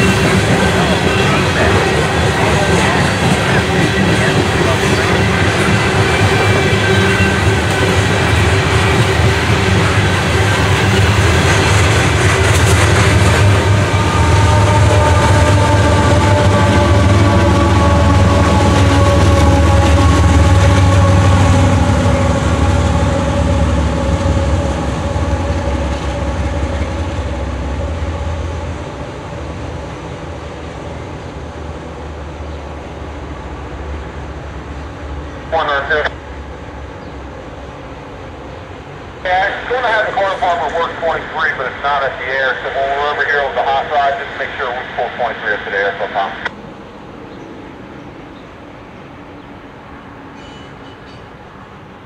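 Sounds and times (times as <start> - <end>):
freight train rumbling on rails: 0.0 - 52.0.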